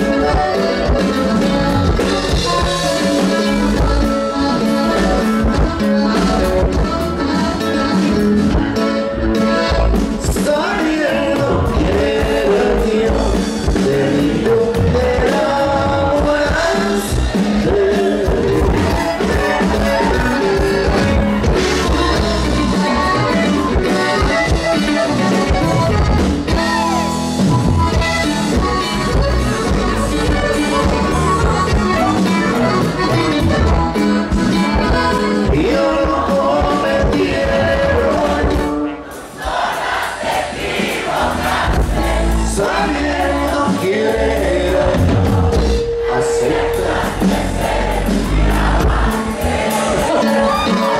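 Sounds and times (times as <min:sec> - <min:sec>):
bass: 0:00.0 - 0:39.1, 0:41.1 - 0:50.9
strummed guitar: 0:00.0 - 0:39.2, 0:40.8 - 0:50.9
accordion melody: 0:00.0 - 0:50.9
steady drum beat: 0:00.0 - 0:50.9
men singing together: 0:10.3 - 0:23.4, 0:35.4 - 0:50.9.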